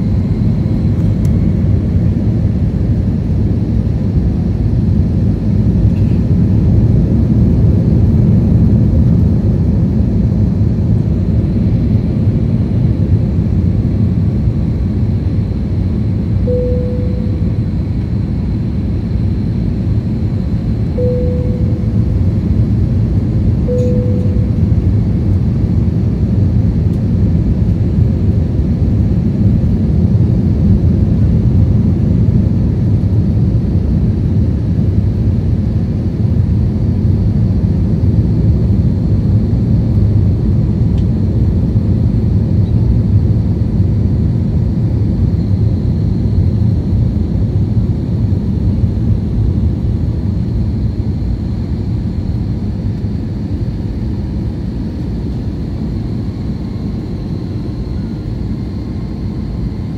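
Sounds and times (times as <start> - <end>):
aircraft cabin engine roar: 0.0 - 59.9
brief tones: 16.4 - 17.8, 21.0 - 22.1, 23.6 - 24.9.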